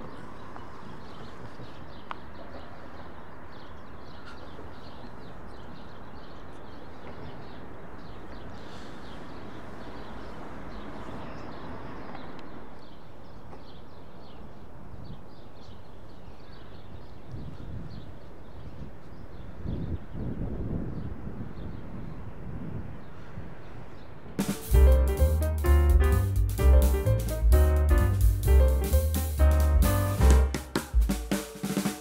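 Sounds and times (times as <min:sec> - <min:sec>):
small birds chirping: 0:00.0 - 0:20.3.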